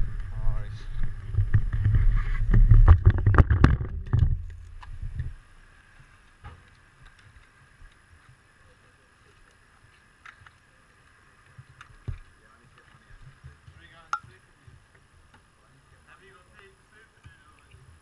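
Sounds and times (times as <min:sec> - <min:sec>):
camera knocks and rubbing: 0:01.3 - 0:05.3
faint clicks: 0:05.9 - 0:08.4, 0:09.2 - 0:15.5.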